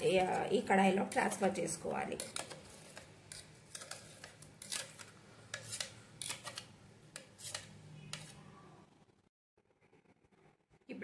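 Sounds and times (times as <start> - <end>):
metal spoon scraping steel jar: 0.0 - 8.5.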